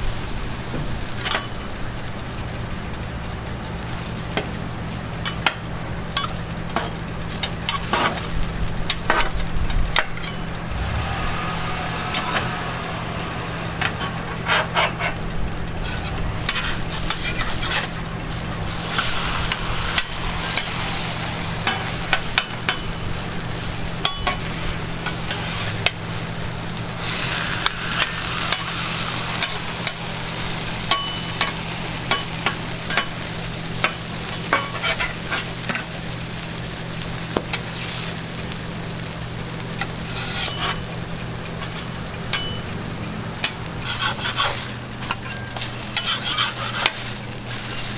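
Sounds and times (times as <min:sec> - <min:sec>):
egg sizzling on a griddle: 0:00.0 - 0:47.9
low hum: 0:09.4 - 0:37.0
metal spatulas scraping griddle: 0:11.9 - 0:15.2, 0:15.8 - 0:23.0, 0:27.0 - 0:33.2, 0:40.1 - 0:40.8, 0:43.7 - 0:47.9.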